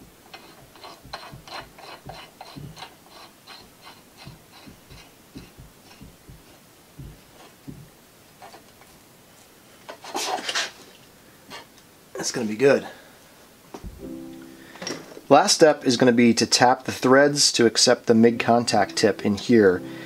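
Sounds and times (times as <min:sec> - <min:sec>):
soft low knocks: 0:00.0 - 0:03.0, 0:04.2 - 0:08.0, 0:13.8 - 0:14.5.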